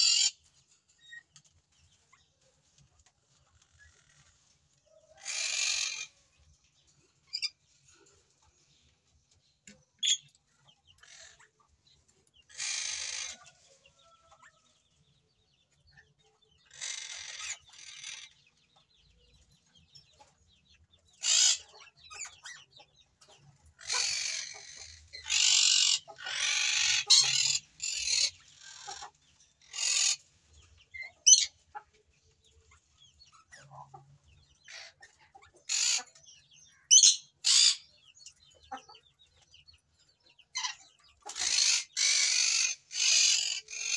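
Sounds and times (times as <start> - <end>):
nestling begging calls: 5.2 - 6.2, 12.5 - 13.5, 23.7 - 30.3, 40.6 - 43.9.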